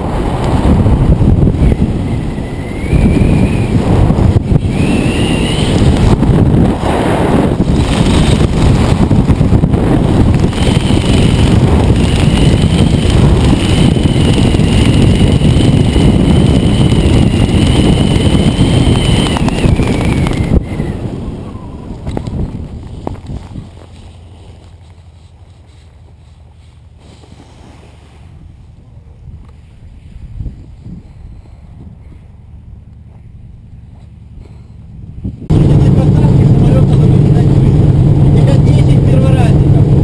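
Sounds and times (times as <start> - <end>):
wind buffeting microphone: 0.0 - 27.0, 28.0 - 40.0
thin wavering whistle: 1.6 - 3.9, 4.6 - 5.8, 17.0 - 21.9.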